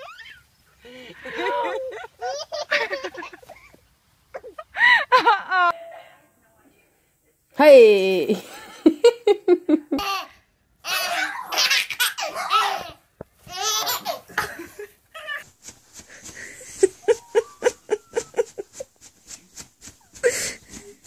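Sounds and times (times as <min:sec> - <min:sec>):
baby belly-laughing: 0:10.0 - 0:14.6.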